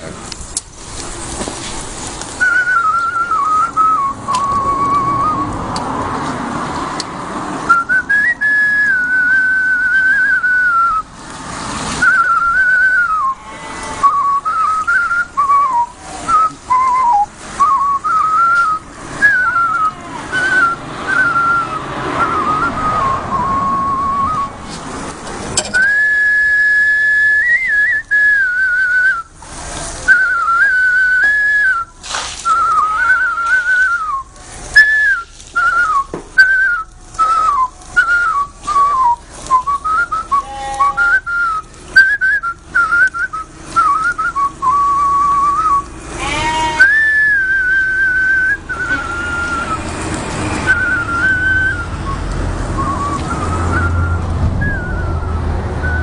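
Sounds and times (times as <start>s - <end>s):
man whistling a tune: 2.4s - 5.5s, 7.7s - 11.1s, 12.0s - 13.4s, 14.0s - 24.7s, 25.7s - 29.4s, 30.1s - 45.9s, 46.8s - 49.9s, 50.6s - 56.0s.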